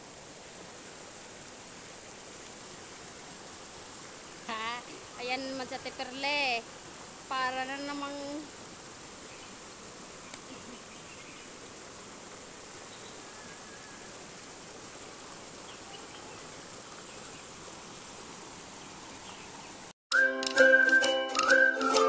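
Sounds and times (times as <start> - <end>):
upbeat music: 20.1 - 22.0.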